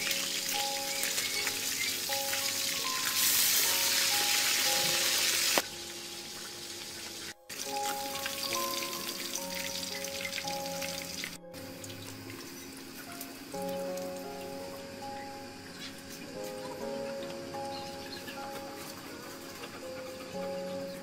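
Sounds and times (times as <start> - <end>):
food deep-frying in hot oil: 0.0 - 16.4.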